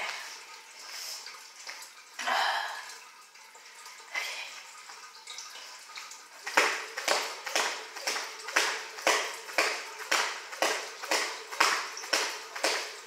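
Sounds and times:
jump rope slapping wooden floor: 6.4 - 13.0.

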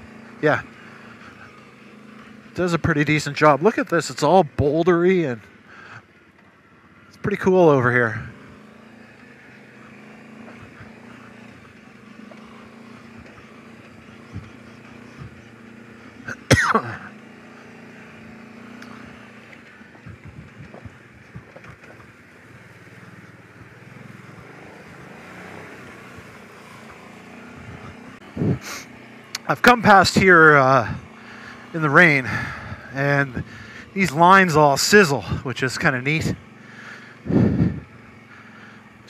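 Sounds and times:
atv engine running: 0.0 - 39.0.

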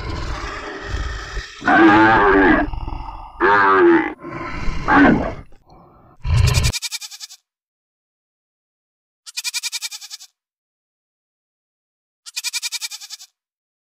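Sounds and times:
goat bleating: 6.6 - 7.4, 9.3 - 10.3, 12.3 - 13.4.

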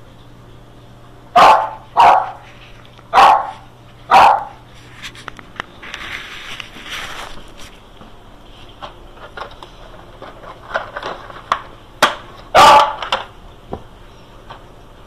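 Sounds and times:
dog barking: 1.3 - 2.4, 3.1 - 4.6, 12.5 - 13.0
clicks and shuffling: 4.6 - 12.4.

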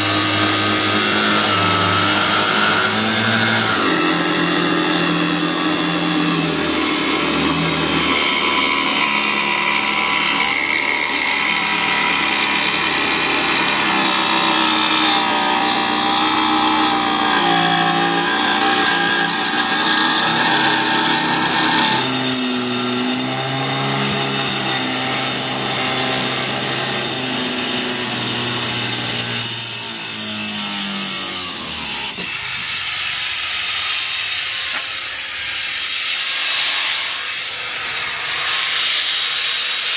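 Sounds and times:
angle grinder cutting: 0.0 - 39.9.

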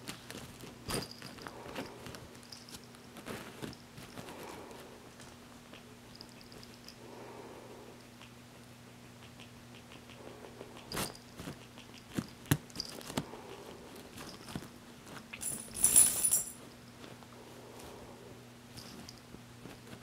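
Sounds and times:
rustling clatter: 0.0 - 4.8, 13.9 - 17.3.

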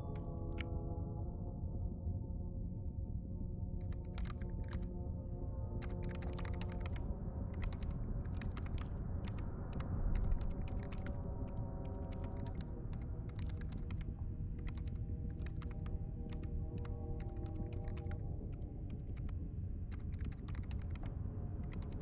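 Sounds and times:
rapid keyboard clicking: 3.8 - 4.8, 5.8 - 22.0.

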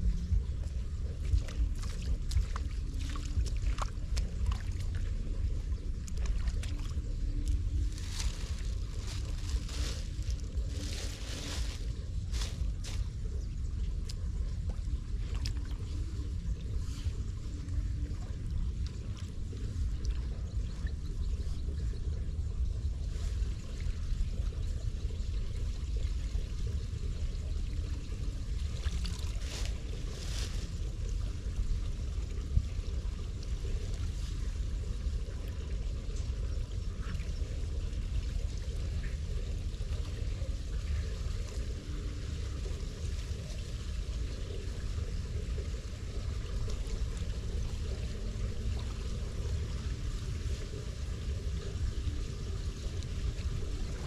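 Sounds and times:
steady low rumble: 0.0 - 54.0
water pouring into a drain: 22.5 - 54.0.

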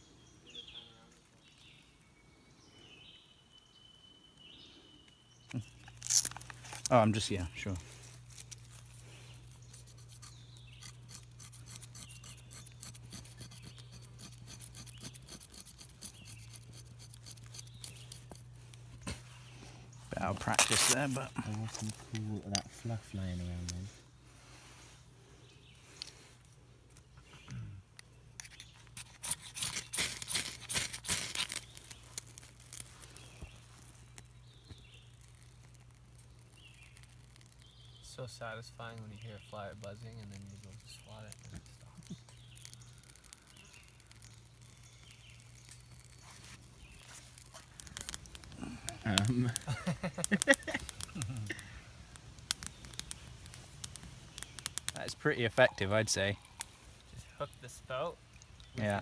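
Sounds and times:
knife scraping wood: 8.0 - 19.4, 28.4 - 34.2.

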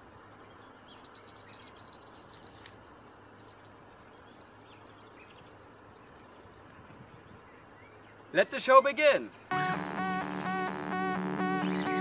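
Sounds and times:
bite indicator ringing: 9.5 - 12.0.

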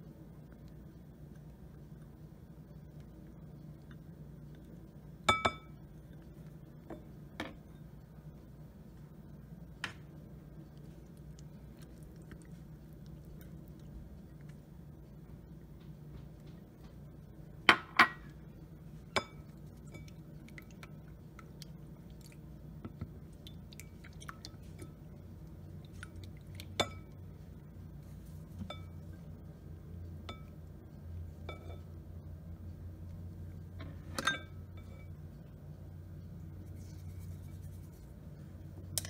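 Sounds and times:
spatula stirring salad in a bowl: 18.2 - 32.1, 36.2 - 39.0
spatula clinking on glass bowl: 26.7 - 27.2, 31.4 - 31.9.

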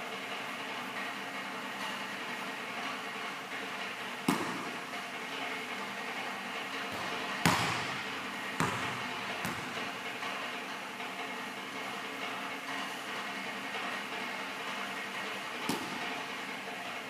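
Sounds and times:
steady background hum: 0.0 - 17.0
basketball bouncing on hardwood floor: 4.3 - 4.7, 6.9 - 9.8.

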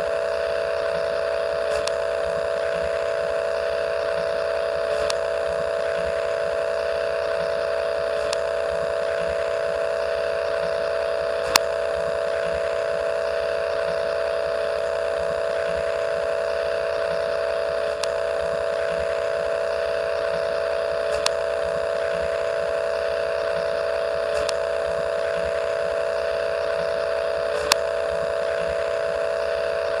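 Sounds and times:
faint regular pulse: 0.0 - 30.0
multi-tone hum: 0.0 - 30.0
tape hiss: 0.0 - 30.0
sharp clicks: 1.6 - 2.1, 4.9 - 5.3, 8.1 - 8.5, 17.9 - 18.2, 21.0 - 21.4, 24.3 - 24.7, 27.5 - 27.9.

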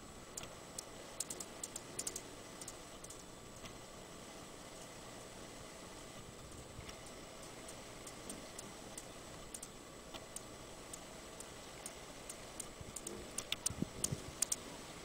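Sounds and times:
sharp high ticks: 0.3 - 3.8, 6.8 - 14.7.

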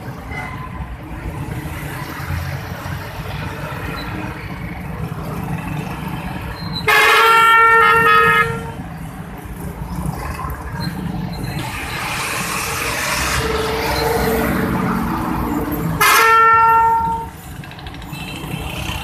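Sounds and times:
traffic engine and road noise: 0.0 - 19.0
vehicle horn: 6.8 - 8.8, 16.0 - 17.4.

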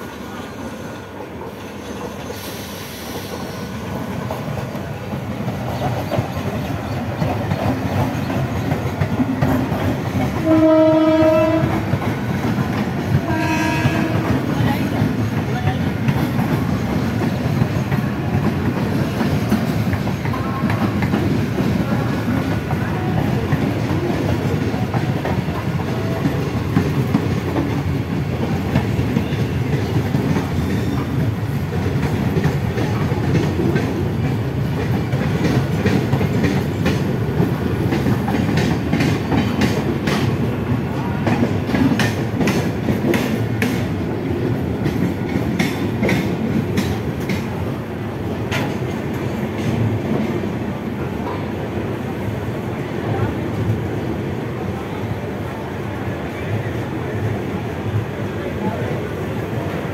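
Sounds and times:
train wheels clickety-clack: 0.0 - 59.9
train wheels rumbling on rail: 0.0 - 59.9.

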